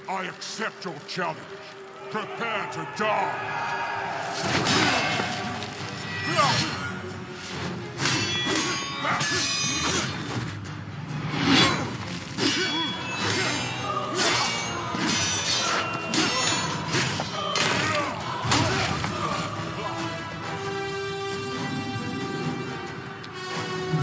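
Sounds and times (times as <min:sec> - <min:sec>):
background music: 0:00.0 - 0:24.0
swords clashing metallically: 0:04.4 - 0:10.6, 0:11.4 - 0:19.1.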